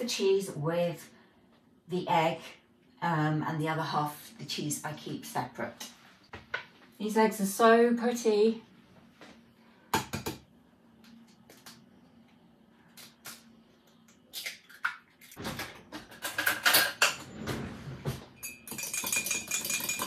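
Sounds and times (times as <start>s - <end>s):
fork clinking and scraping in mug: 18.4s - 20.0s.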